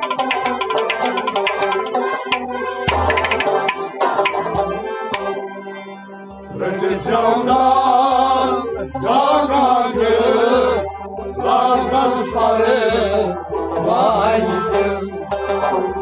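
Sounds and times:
steady drum beat: 2.9 - 4.7
person singing with instruments: 6.5 - 16.0.

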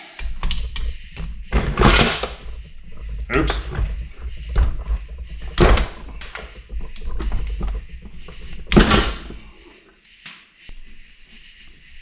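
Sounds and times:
metal parts knocking and clattering: 0.2 - 9.5.

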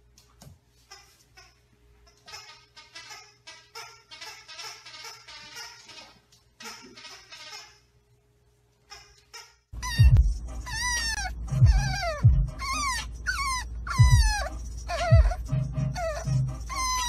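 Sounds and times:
puppy whining and crying: 8.9 - 17.0.

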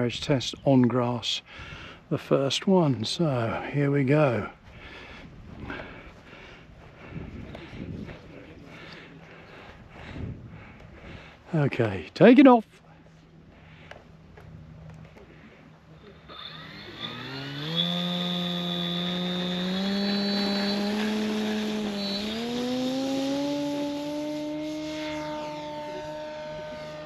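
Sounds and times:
model plane motor and propeller: 13.9 - 27.0.

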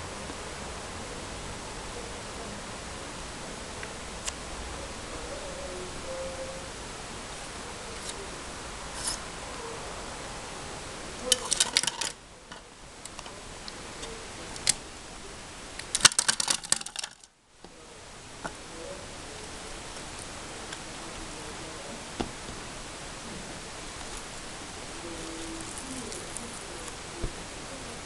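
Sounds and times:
plastic toy pieces clattering: 11.3 - 12.2, 15.8 - 17.3.

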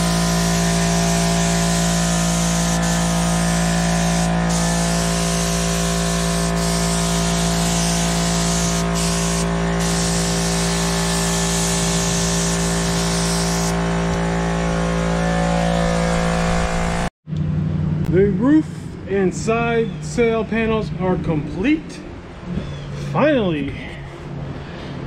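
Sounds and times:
spray gun hissing: 0.0 - 14.0
air compressor humming: 0.0 - 17.1.

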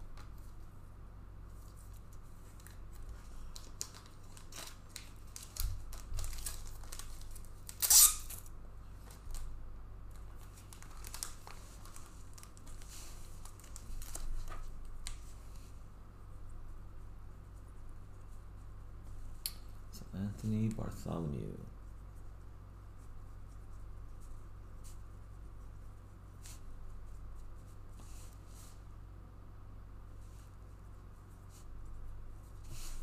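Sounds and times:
steady low hum: 0.0 - 33.0
small clicks and rustles: 1.5 - 8.4, 10.1 - 15.7
packaging tearing and crinkling: 3.5 - 8.5, 10.5 - 14.2
sharp tear: 7.7 - 8.5.

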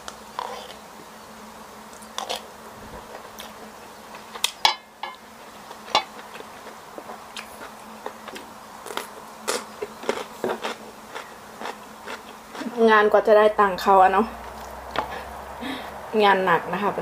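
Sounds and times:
faint steady hum: 0.0 - 17.0
chewing and mouth smacks: 5.7 - 12.7.

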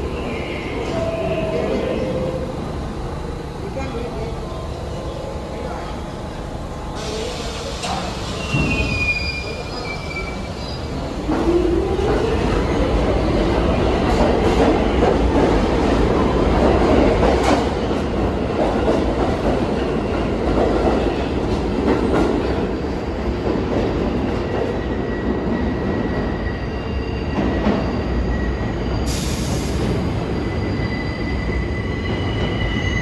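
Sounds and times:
subway train rumbling: 0.0 - 33.0.

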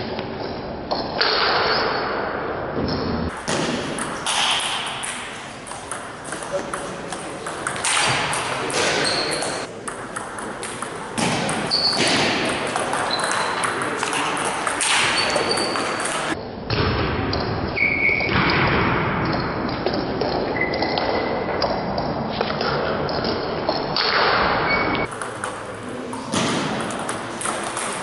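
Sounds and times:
table tennis ball clicking: 3.4 - 16.4, 25.0 - 28.0.

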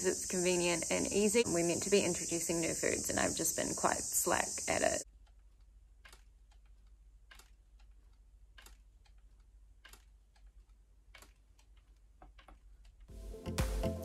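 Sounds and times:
faint regular clicking: 2.2 - 13.1.

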